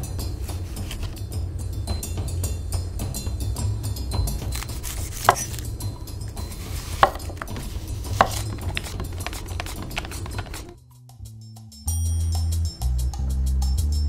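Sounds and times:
background music with low bass: 0.0s - 14.0s
knife knocking on cutting board: 5.2s - 5.5s, 7.0s - 10.6s.

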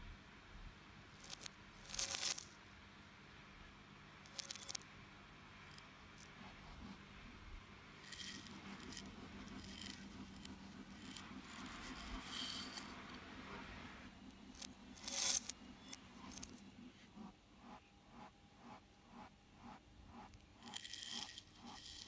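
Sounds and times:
spoon scraping cereal in a bowl: 1.2s - 2.5s, 4.3s - 4.8s, 8.0s - 13.0s, 14.5s - 16.6s, 20.6s - 22.0s.

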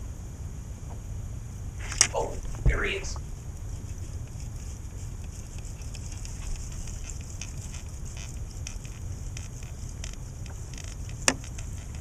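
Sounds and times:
wind rumble on microphone: 0.0s - 12.0s
faint crackling ticks: 3.2s - 12.0s.

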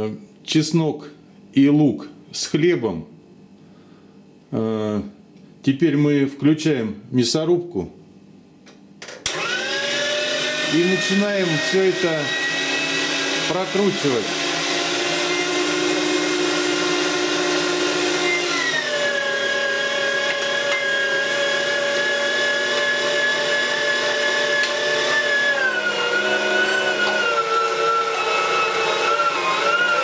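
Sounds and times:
meat grinder motor whine: 9.2s - 30.0s.

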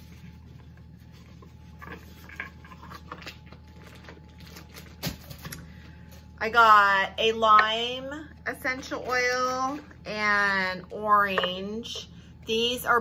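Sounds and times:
steady low hum: 0.0s - 13.0s
packaging rustling and clicking: 1.8s - 5.7s.

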